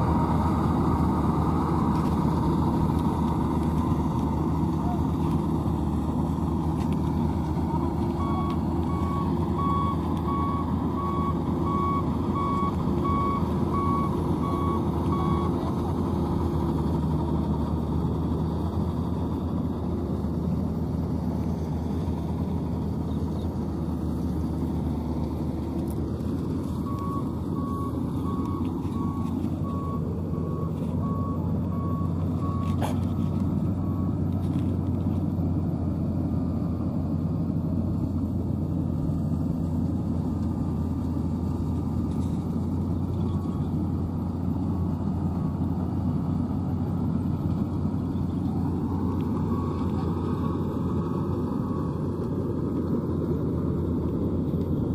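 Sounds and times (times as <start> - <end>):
diesel engine running: 0.0 - 54.9
warning beeper beeping: 7.7 - 15.6.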